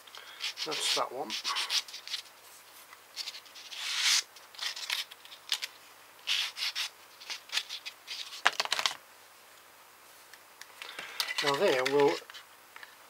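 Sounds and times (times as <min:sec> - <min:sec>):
sanding stick scratching plastic: 0:00.4 - 0:02.3, 0:03.2 - 0:05.1, 0:06.2 - 0:08.4.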